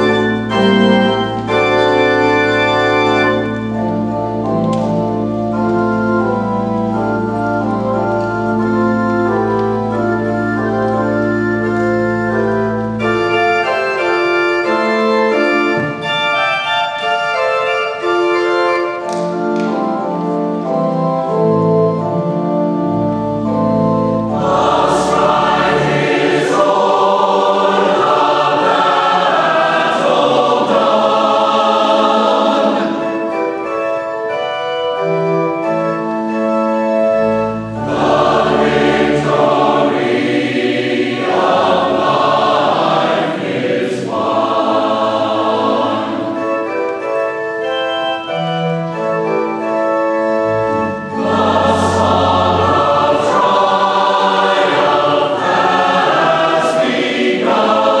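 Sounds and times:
choir singing: 0.0s - 4.1s, 18.8s - 34.1s, 37.4s - 48.4s, 50.5s - 58.0s
church organ chords: 0.0s - 58.0s.

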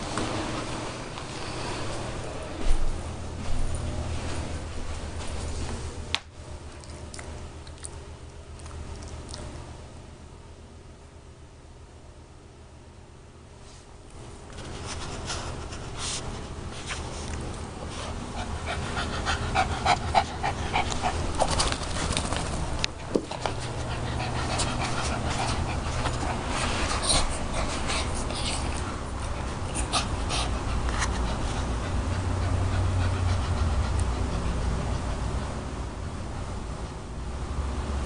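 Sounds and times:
small dog panting: 17.8s - 22.6s, 23.3s - 35.6s.

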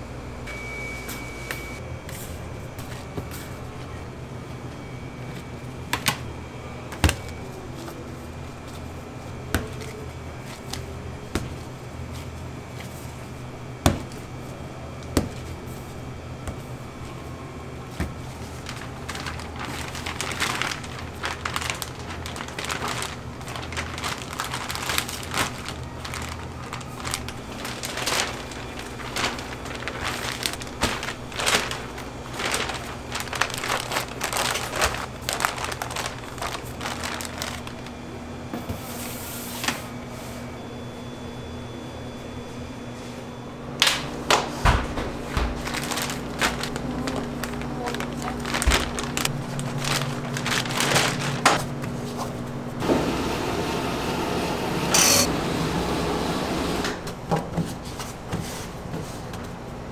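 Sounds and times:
steady low hum: 0.0s - 57.3s
crinkling and crackling handling noises: 14.0s - 38.1s, 45.1s - 52.5s.

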